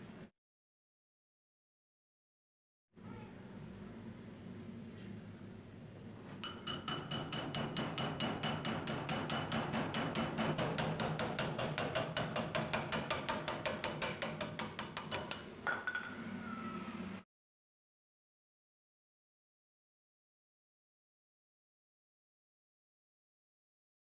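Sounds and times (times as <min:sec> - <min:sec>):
hammer striking metal rod: 0:06.4 - 0:16.2.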